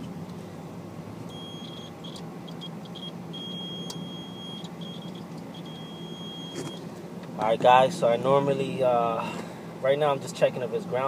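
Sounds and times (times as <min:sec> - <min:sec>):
multimeter continuity beeps: 0:01.3 - 0:06.8.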